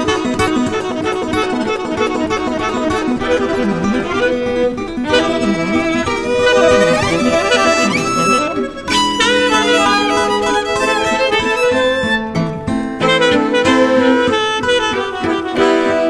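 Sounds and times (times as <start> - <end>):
accordion: 0.0 - 16.0
acoustic guitar: 0.0 - 16.0
fiddle: 0.0 - 16.0
tenor saxophone: 0.0 - 16.0.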